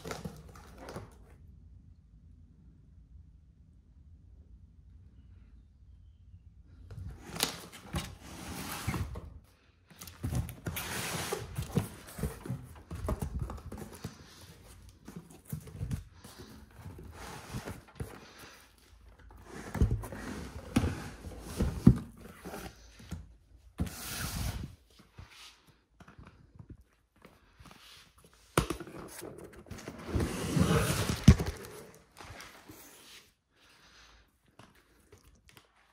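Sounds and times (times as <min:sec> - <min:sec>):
cardboard box rustling and scraping: 0:10.0 - 0:22.9, 0:28.8 - 0:33.3.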